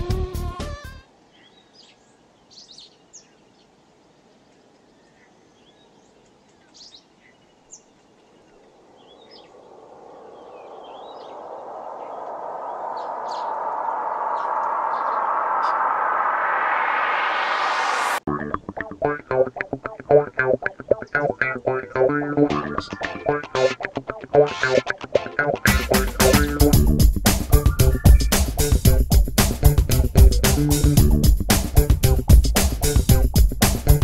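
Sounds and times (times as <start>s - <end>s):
songbirds chirping: 1.0s - 16.2s, 18.7s - 25.6s, 27.5s - 28.8s
rushing hiss of noise: 8.8s - 18.2s.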